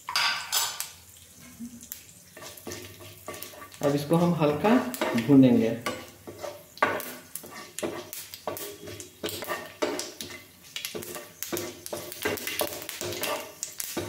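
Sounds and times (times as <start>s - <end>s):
spices sizzling in oil: 0.0s - 14.0s
spatula scraping frying pan: 2.3s - 14.0s.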